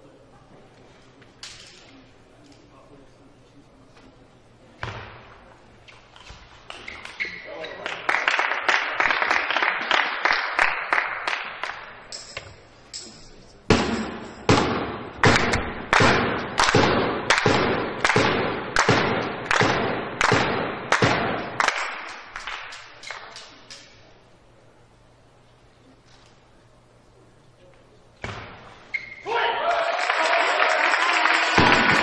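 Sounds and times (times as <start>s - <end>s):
spectators beating rhythmically: 13.7s - 22.6s, 29.9s - 32.0s.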